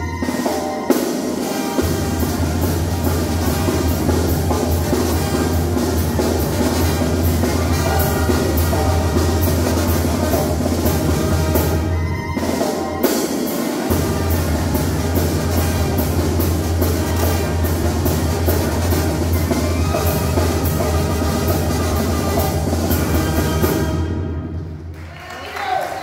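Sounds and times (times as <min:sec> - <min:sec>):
bass drum and cymbal beat: 0:00.0 - 0:11.9
brass band playing: 0:00.0 - 0:25.0
tuba bass line: 0:01.4 - 0:12.6, 0:13.8 - 0:24.4.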